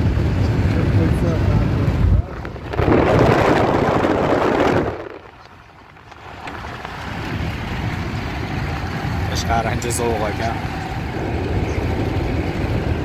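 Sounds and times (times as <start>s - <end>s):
steady road hum inside car: 0.0s - 13.0s
car passing close alongside: 6.1s - 13.0s.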